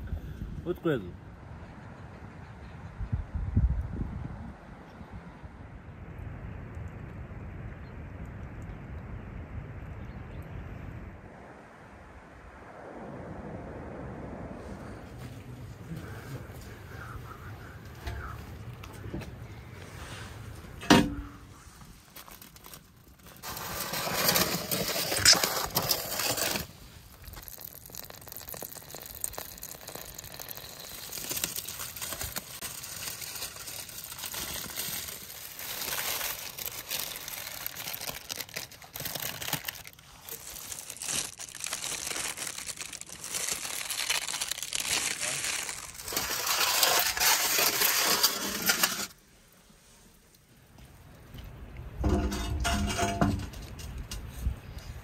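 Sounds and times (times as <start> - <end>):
foil and paper crinkling: 21.7 - 49.2.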